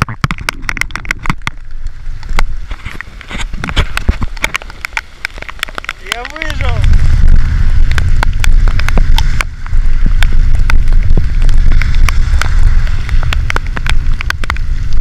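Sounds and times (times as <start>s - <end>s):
raindrops tapping on camera: 0.0s - 15.0s
wind buffeting microphone: 0.0s - 15.0s.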